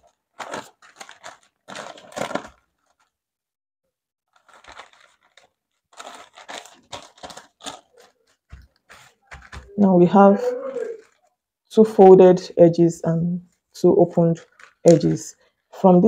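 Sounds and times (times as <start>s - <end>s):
paper rustling and crinkling: 0.0s - 3.2s, 4.3s - 9.8s, 10.7s - 11.3s, 14.4s - 15.2s.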